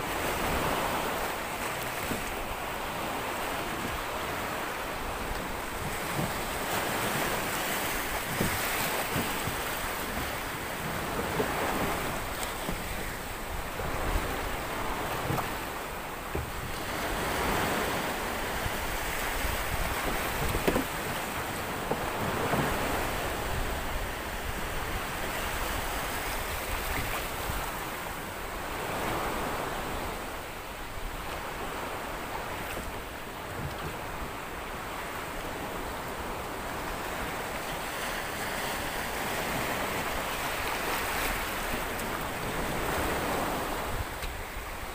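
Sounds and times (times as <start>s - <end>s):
sea waves breaking: 0.0s - 44.9s
wind on microphone: 0.0s - 44.9s.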